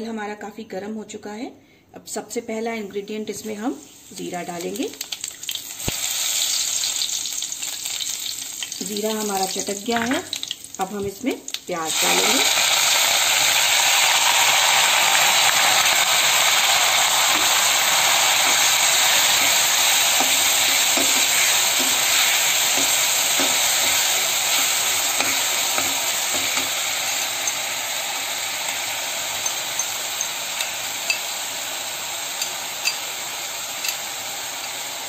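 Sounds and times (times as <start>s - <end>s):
onions sizzling in oil: 3.3s - 35.0s
metal spatula clicking against pan: 29.4s - 31.3s, 33.8s - 34.1s.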